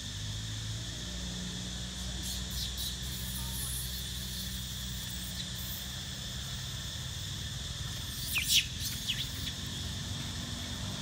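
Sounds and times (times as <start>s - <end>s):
high insect drone: 0.0s - 11.0s
high squeaky calls: 2.2s - 5.8s, 8.1s - 9.6s.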